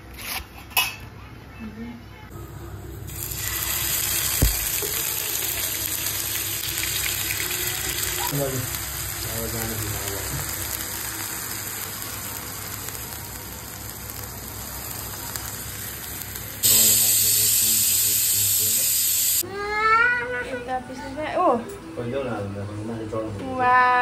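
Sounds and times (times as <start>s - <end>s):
paste sizzling in hot oil: 3.1s - 19.4s
sharp knock: 4.4s - 4.8s.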